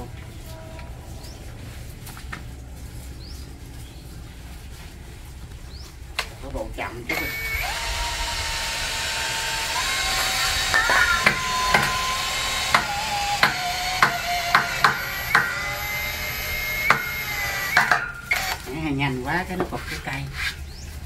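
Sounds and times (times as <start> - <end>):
cordless drill motor whine: 7.1 - 18.7
sharp knocks: 10.7 - 15.6, 17.7 - 18.2.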